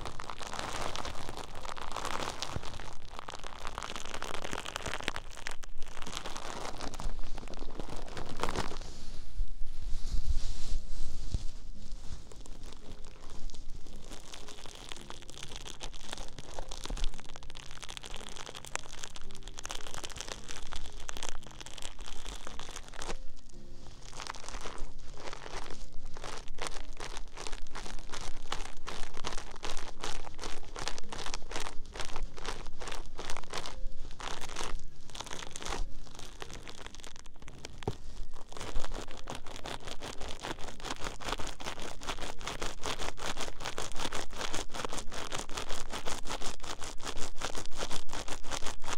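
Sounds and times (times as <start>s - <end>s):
crinkling and crunching close-up: 0.0s - 48.9s.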